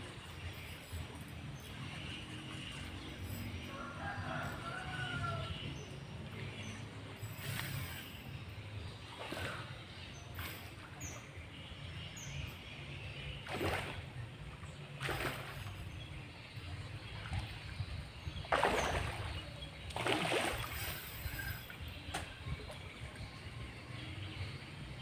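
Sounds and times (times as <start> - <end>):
fish splashing at water surface: 13.4 - 14.1, 15.0 - 15.8, 18.5 - 21.6.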